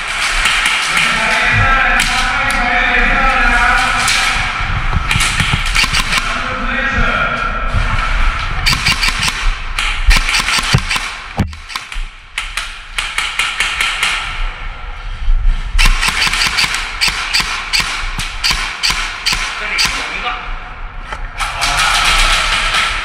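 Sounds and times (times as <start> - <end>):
airsoft guns firing: 0.0 - 2.3, 5.0 - 6.4, 8.6 - 14.4, 15.8 - 20.2.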